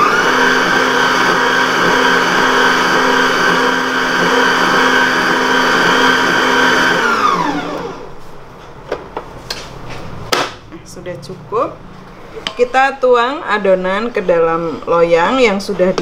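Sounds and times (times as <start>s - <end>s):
stand mixer motor whine: 0.0s - 8.1s.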